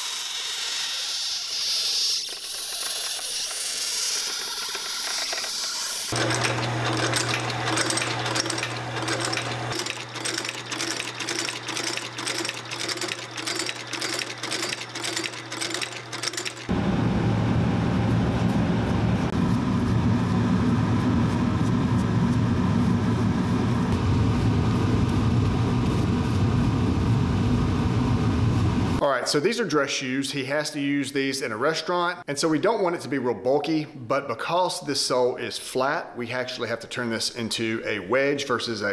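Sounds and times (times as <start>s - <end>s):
shoe-repair machine humming: 0.0s - 28.9s
workshop machinery rumbling: 4.5s - 20.5s
rhythmic clacking: 4.7s - 16.7s.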